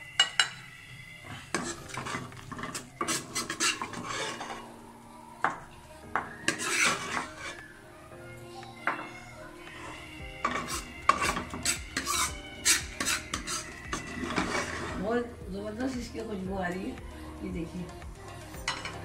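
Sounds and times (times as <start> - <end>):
metal spoon scraping a wok: 0.2 - 4.7, 6.5 - 7.7, 9.8 - 15.1.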